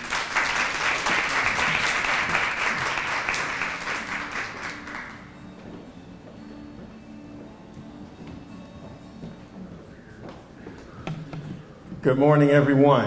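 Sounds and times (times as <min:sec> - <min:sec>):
small audience applauding: 0:00.0 - 0:05.4.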